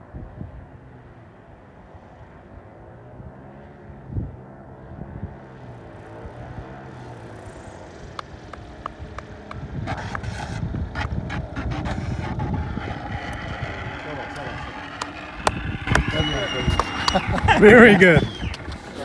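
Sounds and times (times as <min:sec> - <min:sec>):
model plane engine droning: 0:04.7 - 0:19.0
wheels rattling on runway: 0:05.4 - 0:19.0
wind buffeting microphone: 0:08.4 - 0:19.0.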